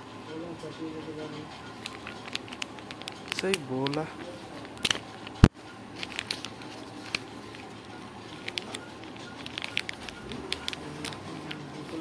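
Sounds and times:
handling clicks and crackles: 1.7s - 12.0s.

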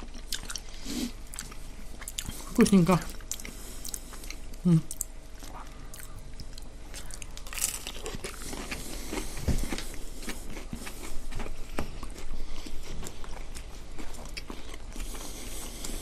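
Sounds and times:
bread crust crunching: 6.4s - 16.0s.

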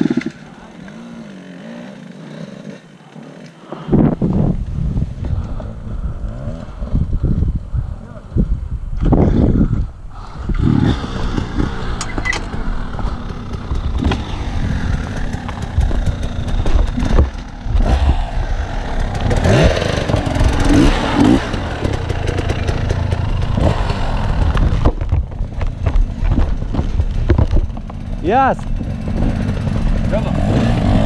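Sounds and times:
motorcycle engine revving: 0.0s - 4.6s, 5.2s - 8.1s, 10.2s - 31.0s
bike knocking over stones: 15.3s - 17.5s, 24.4s - 28.2s.

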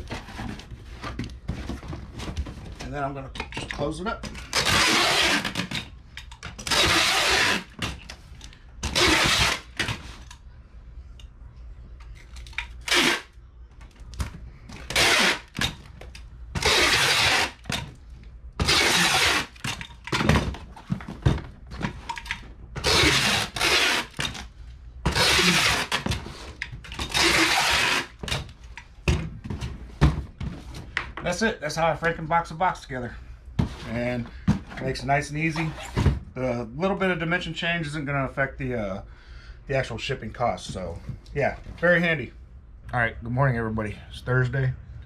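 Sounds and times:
packing tape screeching: 4.4s - 5.8s, 6.6s - 8.0s, 8.8s - 10.1s, 12.4s - 13.4s, 14.8s - 15.8s, 16.6s - 17.9s, 18.6s - 20.3s, 22.8s - 28.5s.

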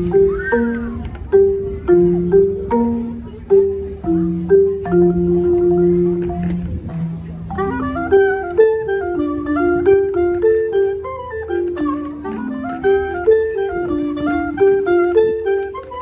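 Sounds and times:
marimba low notes: 0.0s - 16.0s
soprano saxophone run: 7.5s - 16.0s.

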